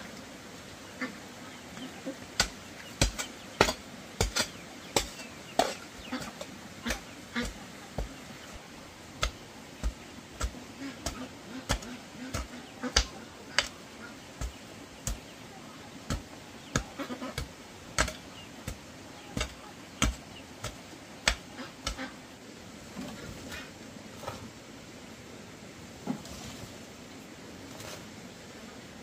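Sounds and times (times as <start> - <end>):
hand tool striking wood: 2.4 - 8.1, 9.2 - 13.8, 16.1 - 18.8, 19.4 - 22.0.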